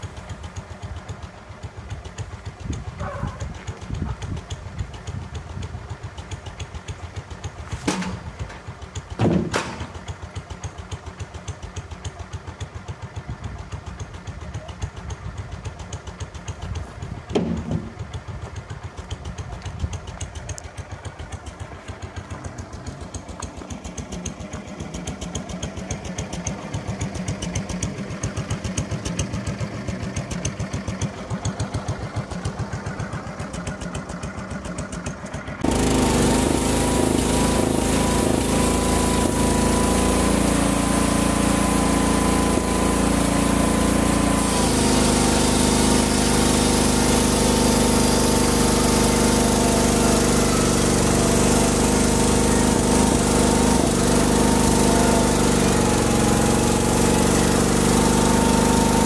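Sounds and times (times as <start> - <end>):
engine idling: 0.0 - 59.0
band saw blade sawing log: 30.3 - 59.0.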